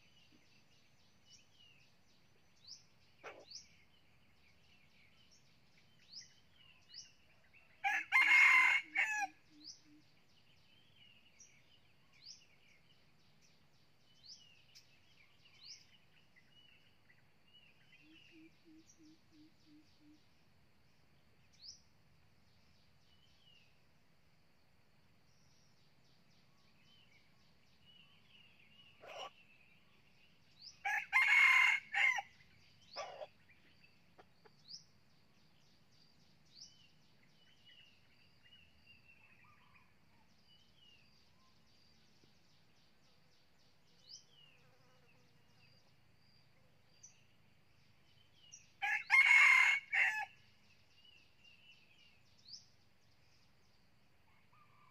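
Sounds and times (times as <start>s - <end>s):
small birds chirping: 0.0s - 23.9s, 25.2s - 54.9s
rooster crowing: 7.8s - 9.4s, 30.8s - 32.3s, 48.8s - 50.4s.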